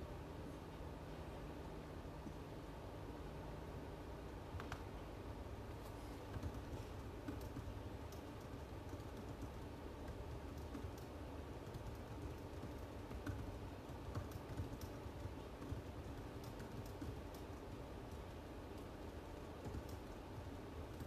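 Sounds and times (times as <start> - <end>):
low room hum: 0.0 - 21.0
computer keyboard typing: 6.3 - 21.0.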